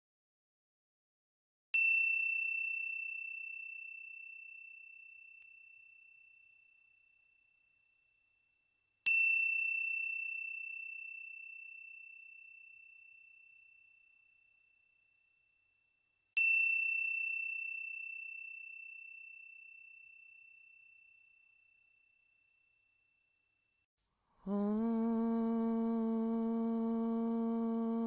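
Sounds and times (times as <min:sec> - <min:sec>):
small high-pitched bell ringing: 0:01.8 - 0:15.5, 0:16.4 - 0:23.3.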